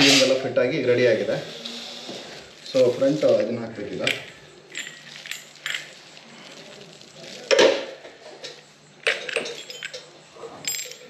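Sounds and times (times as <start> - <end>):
metal parts clinking: 4.0 - 6.6, 8.4 - 11.0.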